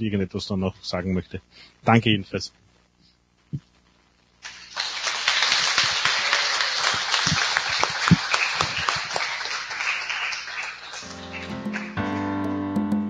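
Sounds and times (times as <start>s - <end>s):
group of people applauding: 4.4s - 12.6s.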